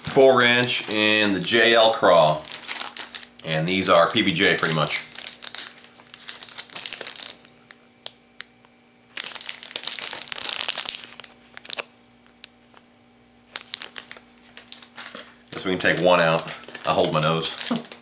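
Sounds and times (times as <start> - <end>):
plastic packs crinkling: 0.0 - 8.5, 9.1 - 12.9, 13.5 - 18.0.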